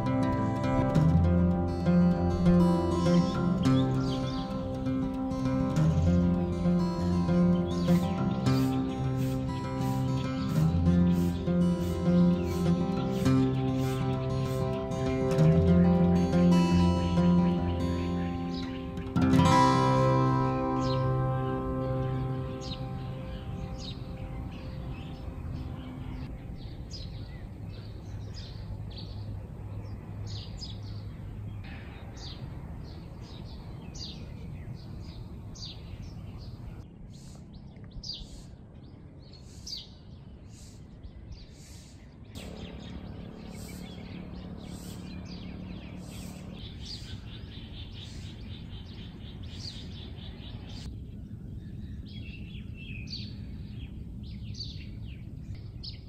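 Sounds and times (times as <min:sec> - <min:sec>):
steady low hum: 0:00.0 - 0:31.9, 0:33.6 - 0:56.0
birds chirping: 0:00.0 - 0:56.0.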